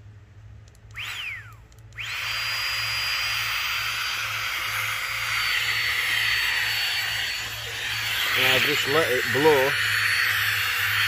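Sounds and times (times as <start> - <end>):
air pump whining: 0.8 - 11.0.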